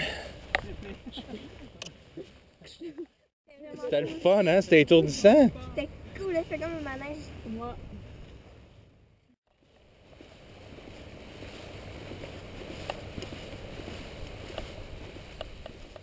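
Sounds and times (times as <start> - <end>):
wind rumbling on microphone: 9.8 - 16.0.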